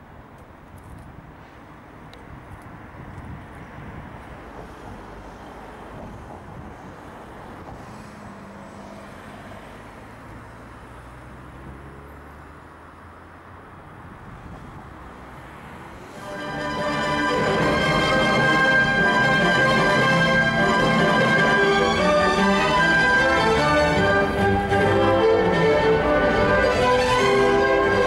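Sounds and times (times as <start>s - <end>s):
music: 16.2s - 28.0s.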